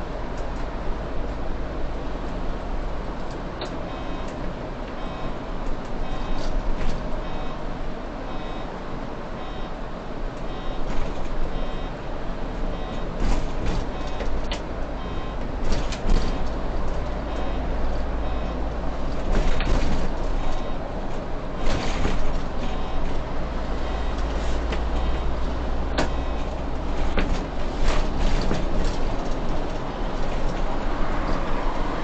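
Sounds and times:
bus engine and road noise: 0:00.0 - 0:32.0
short electronic beeps: 0:03.9 - 0:07.6, 0:08.3 - 0:08.8, 0:09.4 - 0:09.8, 0:10.4 - 0:12.0, 0:12.7 - 0:15.4, 0:16.0 - 0:18.8, 0:19.4 - 0:20.9, 0:21.6 - 0:27.2.

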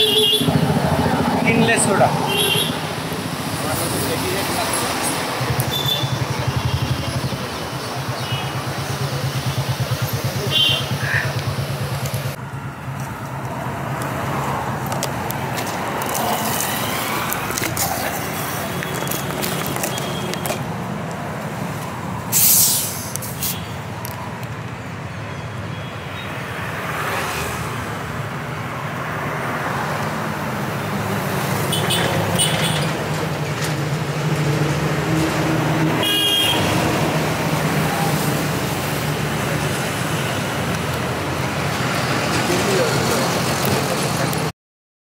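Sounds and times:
street traffic engine rumble: 0:00.0 - 0:44.5
loud burst of hiss: 0:22.3 - 0:23.7.

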